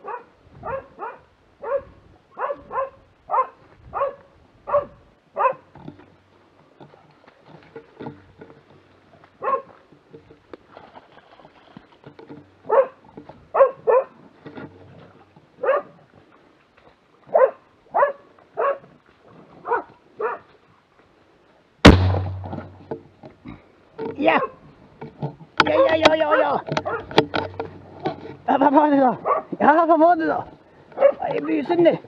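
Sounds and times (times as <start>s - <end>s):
dog barking: 0.0s - 5.7s, 9.4s - 9.7s, 12.7s - 14.2s, 15.6s - 16.0s, 17.3s - 18.9s, 19.6s - 20.5s, 26.3s - 27.2s, 29.2s - 29.6s, 31.0s - 31.4s
loud gunshot: 21.8s - 22.6s.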